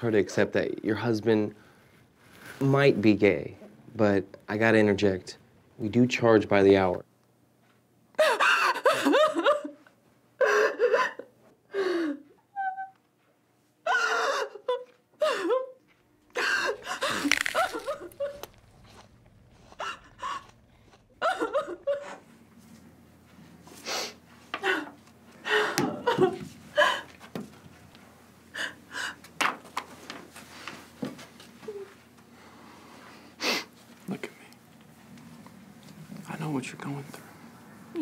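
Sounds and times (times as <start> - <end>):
woman sobbing: 8.2 - 9.8, 10.4 - 13.0, 13.8 - 18.8, 19.8 - 22.2, 24.5 - 27.2.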